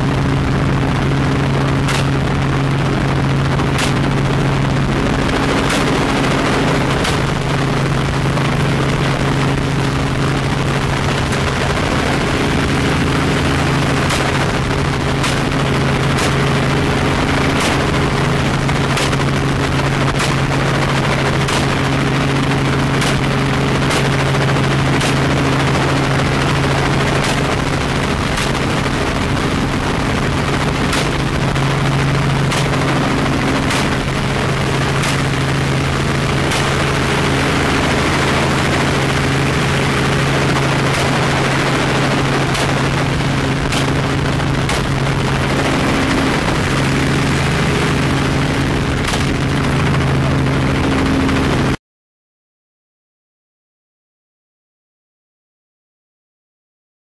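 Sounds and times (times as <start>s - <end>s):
helicopter engine and rotor drone: 0.0s - 51.8s.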